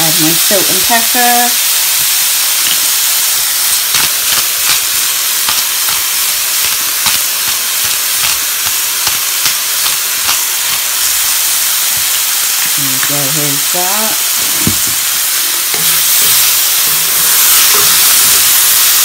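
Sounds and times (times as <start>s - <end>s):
chicken and onions sizzling in pan: 0.0s - 19.0s.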